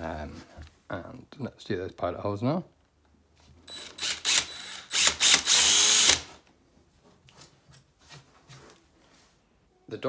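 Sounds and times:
cordless drill drilling: 3.7s - 6.4s.

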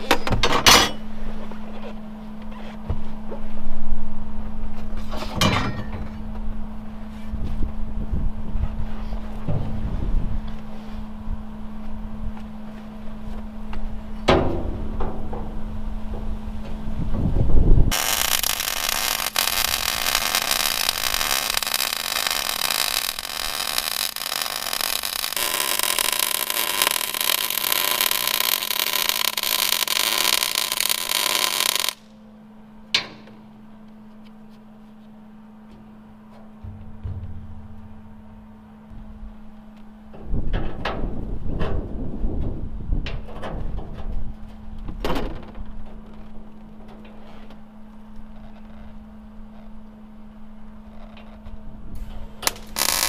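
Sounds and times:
steady hum: 0.0s - 45.0s
welder arc crackling: 17.9s - 32.1s, 52.4s - 53.0s.

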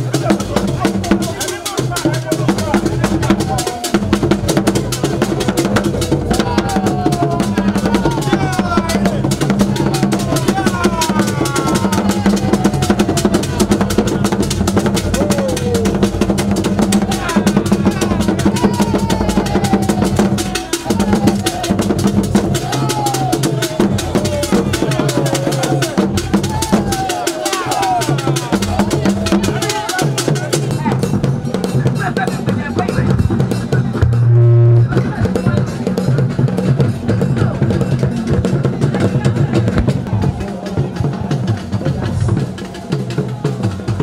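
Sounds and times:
voices calling out: 0.0s - 35.9s
loud fast drumming: 0.0s - 44.0s
low steady tone: 34.0s - 35.0s.

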